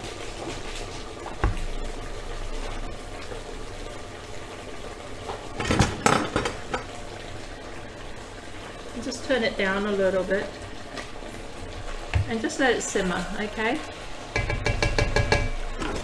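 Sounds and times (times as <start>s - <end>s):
pot boiling hard: 0.0s - 16.0s
cookware clatter: 14.3s - 16.0s
knock: 14.4s - 15.6s.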